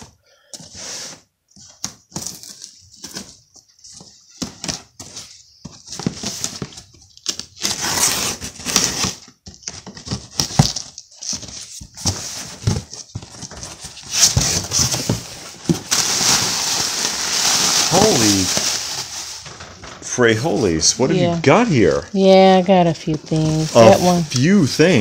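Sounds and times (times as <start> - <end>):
cardboard scraping and rustling: 7.6 - 21.1.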